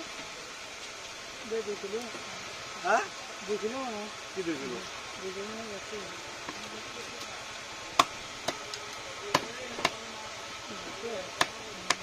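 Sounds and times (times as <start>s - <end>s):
cleaver chopping fish on wood: 8.0s - 8.6s, 9.3s - 10.0s, 11.3s - 12.0s.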